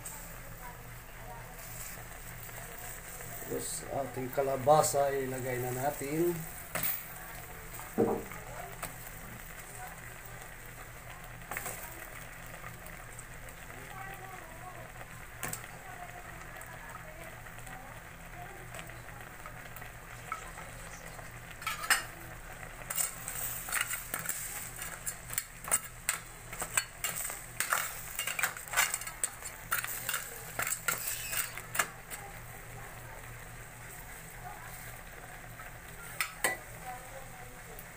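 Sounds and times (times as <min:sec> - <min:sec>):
pot cooking hiss: 0:00.0 - 0:37.9
spatula scraping and knocking pot: 0:25.0 - 0:31.9.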